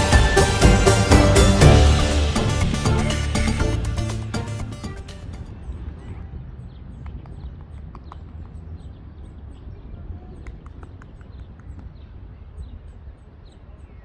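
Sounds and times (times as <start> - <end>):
steady low rumble: 0.0 - 10.4
small birds chirping: 5.5 - 14.0.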